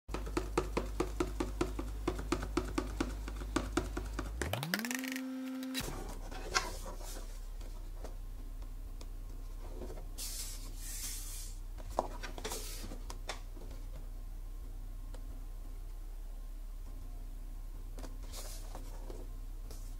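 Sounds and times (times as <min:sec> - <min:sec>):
rising tone: 0:04.4 - 0:05.8.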